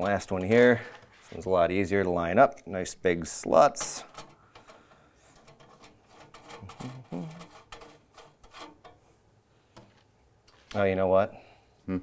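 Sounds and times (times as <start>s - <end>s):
screwdriver clicks and metal scrapes: 3.8s - 9.1s.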